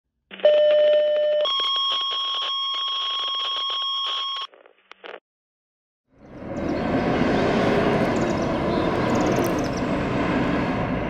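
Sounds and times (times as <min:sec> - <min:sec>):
radio crackles: 0:01.9 - 0:05.2.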